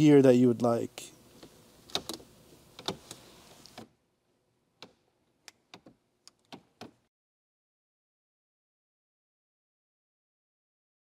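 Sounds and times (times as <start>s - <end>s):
gear shifter plastic clicks: 1.4s - 2.2s, 2.8s - 3.9s.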